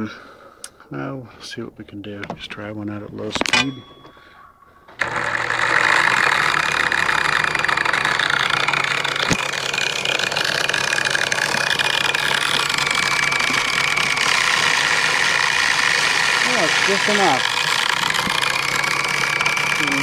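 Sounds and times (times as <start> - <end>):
angle grinder motor whine: 4.0 - 20.0.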